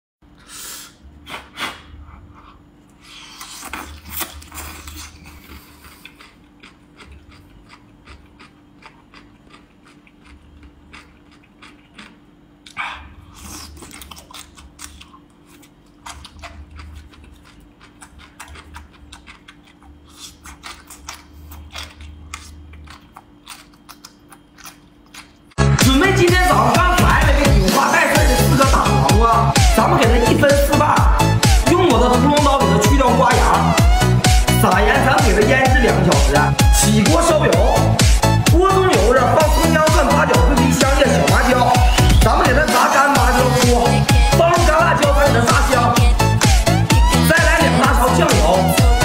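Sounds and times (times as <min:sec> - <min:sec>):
wet mouth sounds: 0:00.7 - 0:25.6
person crunching cucumber: 0:03.0 - 0:25.6.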